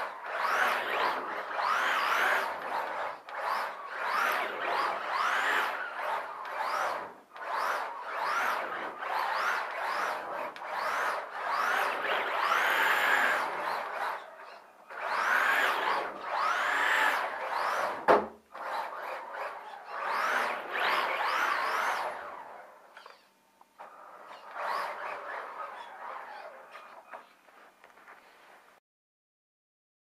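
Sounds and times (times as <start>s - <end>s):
electric motor whining: 0.0s - 18.0s, 18.6s - 27.3s
sharp knock: 18.1s - 18.4s.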